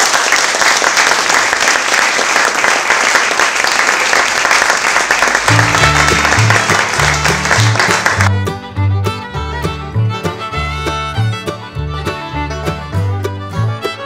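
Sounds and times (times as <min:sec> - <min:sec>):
audience applauding: 0:00.0 - 0:08.5
music with low bass line: 0:05.5 - 0:14.0.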